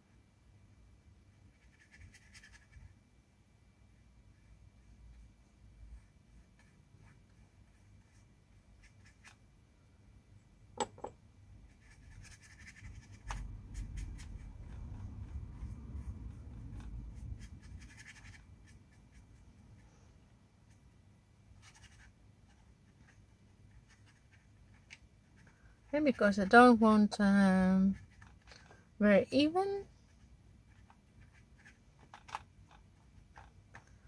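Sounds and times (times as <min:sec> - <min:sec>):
paintbrush brushing on paper: 0:01.5 - 0:03.0, 0:11.6 - 0:20.9, 0:21.5 - 0:26.6.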